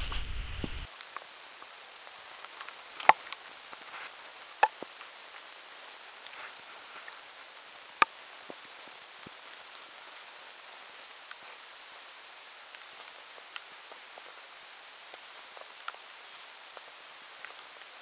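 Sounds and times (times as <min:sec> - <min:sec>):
water dripping onto snow: 0:00.9 - 0:18.0.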